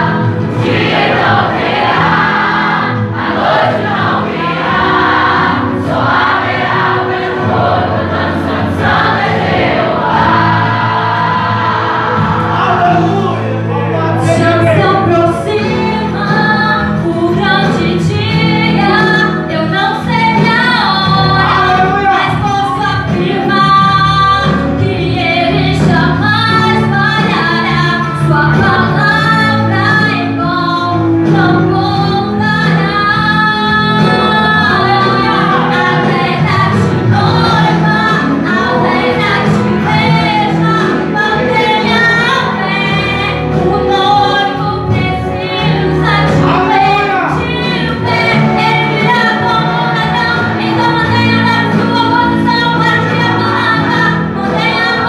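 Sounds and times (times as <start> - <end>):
band accompaniment: 0.0 - 55.0
woman singing: 14.3 - 55.0.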